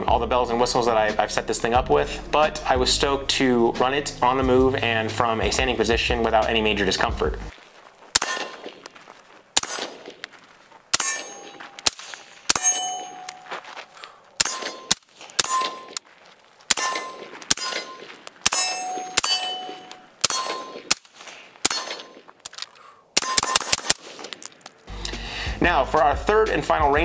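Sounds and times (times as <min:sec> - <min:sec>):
suppressed rifle shots: 0:08.1 - 0:08.9, 0:09.6 - 0:10.3, 0:10.9 - 0:13.0, 0:14.4 - 0:16.0, 0:16.7 - 0:22.3, 0:23.2 - 0:24.4
steel target ringing: 0:08.2 - 0:08.9, 0:11.0 - 0:13.6, 0:14.4 - 0:16.0, 0:16.7 - 0:21.0, 0:21.7 - 0:22.2.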